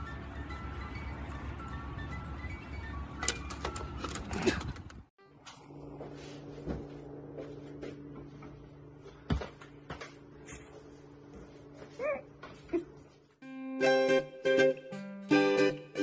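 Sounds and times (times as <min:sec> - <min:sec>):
high wavering chirp: 0:00.0 - 0:03.2
low electrical hum: 0:05.2 - 0:13.4.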